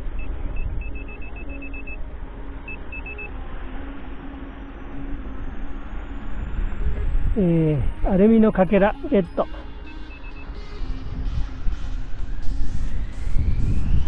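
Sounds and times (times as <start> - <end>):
wind noise on microphone: 0.0 - 2.7, 6.2 - 14.0
metal detector beeping: 0.1 - 2.0, 2.7 - 3.3, 8.8 - 10.6.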